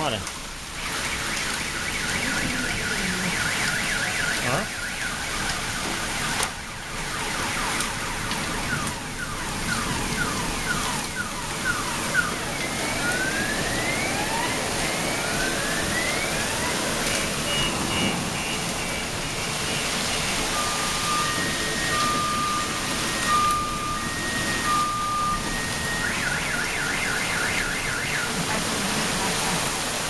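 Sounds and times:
car alarm: 0:00.0 - 0:29.9
heavy rain and hail: 0:00.0 - 0:30.0.

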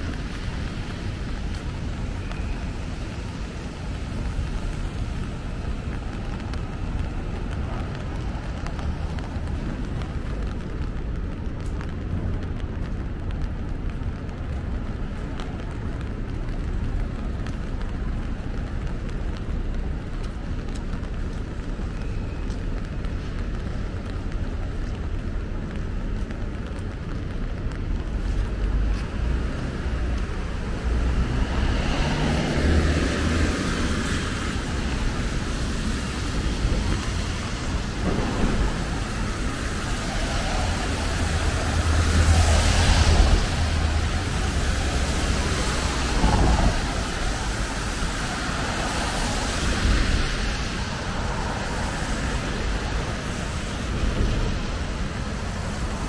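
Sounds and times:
low traffic rumble: 0:00.0 - 0:56.0
vehicles passing with tyre hiss: 0:22.8 - 0:56.0.

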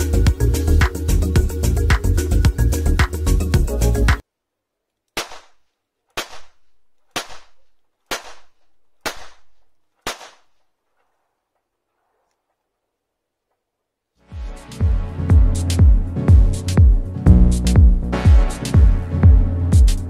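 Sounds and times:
blank revolver shots with echo: 0:06.2 - 0:10.6.

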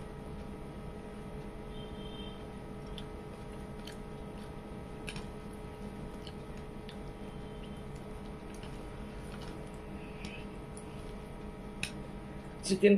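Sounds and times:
low room hum: 0:00.0 - 0:12.9
person chewing: 0:02.8 - 0:11.2.

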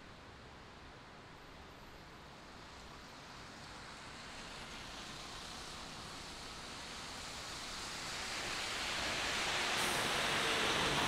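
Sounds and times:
tyres hissing on wet road: 0:02.4 - 0:11.0.

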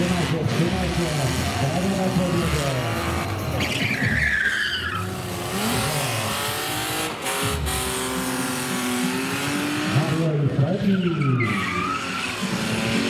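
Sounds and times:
car engine revving hard: 0:00.0 - 0:03.8, 0:04.9 - 0:10.5, 0:11.2 - 0:13.0
tyre squeal: 0:02.4 - 0:06.2, 0:10.8 - 0:12.6.

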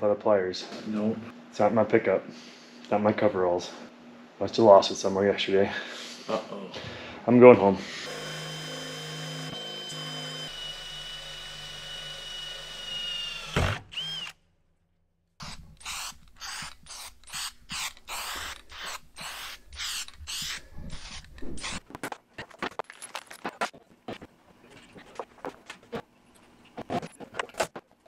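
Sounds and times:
cordless drill boring into metal: 0:08.0 - 0:14.4, 0:15.4 - 0:21.8.

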